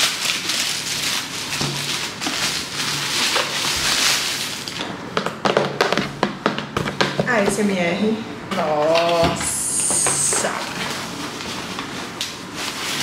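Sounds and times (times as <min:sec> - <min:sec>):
packaging rustling and crinkling: 0:00.0 - 0:07.2, 0:10.0 - 0:13.0.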